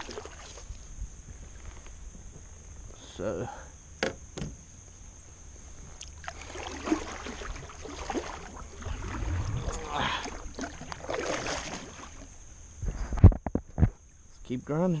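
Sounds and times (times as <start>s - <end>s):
kayak paddle splashing: 0.0s - 0.7s, 6.0s - 12.4s.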